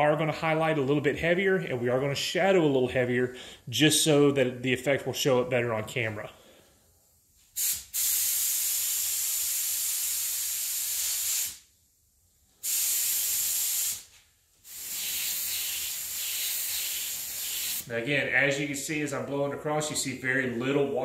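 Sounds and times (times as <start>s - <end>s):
spray gun hissing: 7.5s - 11.7s, 12.6s - 17.9s.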